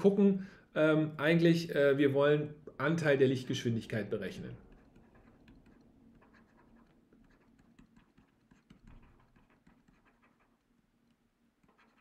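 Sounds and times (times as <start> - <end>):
stylus writing on tablet screen: 4.2 - 12.0.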